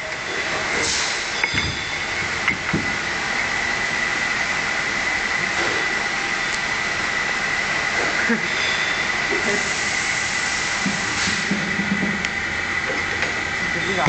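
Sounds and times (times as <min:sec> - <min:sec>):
bottles clinking: 0:00.0 - 0:03.2
machinery high whine: 0:00.0 - 0:14.0.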